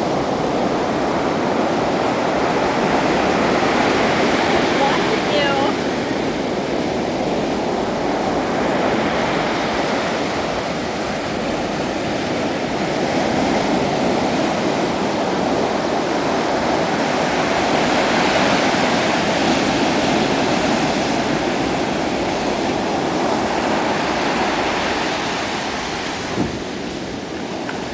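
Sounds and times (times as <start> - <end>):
ocean surf breaking: 0.0 - 27.9.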